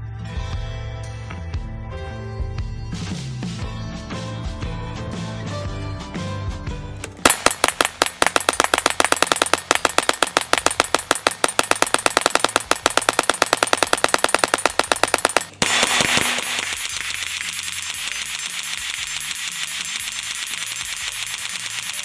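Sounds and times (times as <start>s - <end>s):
gatling gun rapid firing: 7.0s - 22.0s.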